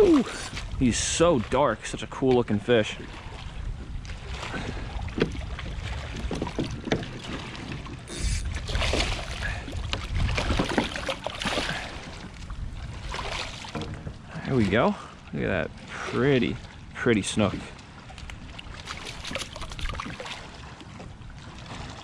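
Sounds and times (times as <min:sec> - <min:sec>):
wind rumble on microphone: 0:00.0 - 0:22.0
fish thrashing and splashing: 0:04.2 - 0:14.5, 0:18.0 - 0:20.8.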